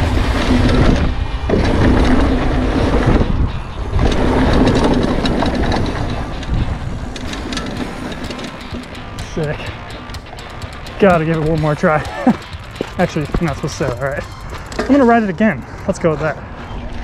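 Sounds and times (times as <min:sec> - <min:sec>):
wind rumble on microphone: 0:00.0 - 0:08.3
bike tyres rolling on dirt: 0:00.0 - 0:17.0.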